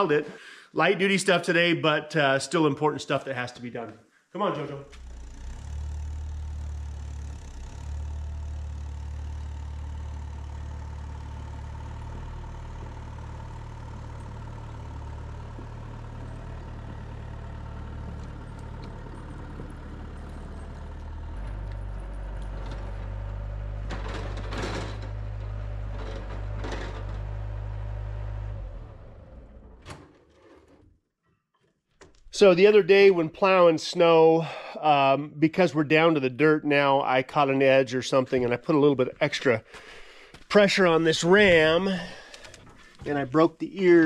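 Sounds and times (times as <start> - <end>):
diesel engine running: 4.9 - 29.8.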